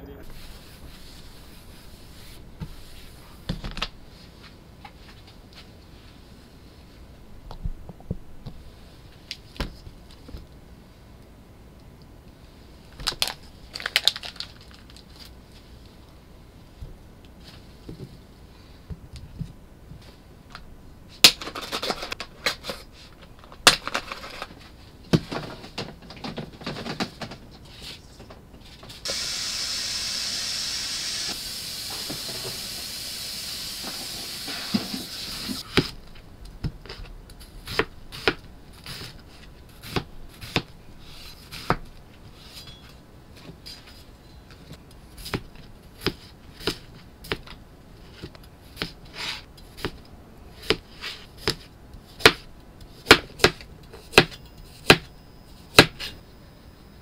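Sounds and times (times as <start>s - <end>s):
steady hiss: 0.0s - 4.7s, 29.0s - 35.8s.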